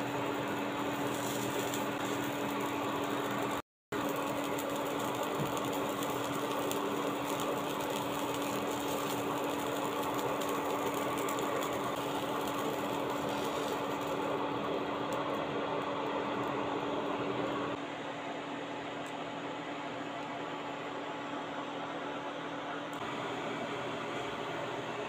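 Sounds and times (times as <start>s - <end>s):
egg frying in oil sizzling: 0.0s - 17.8s.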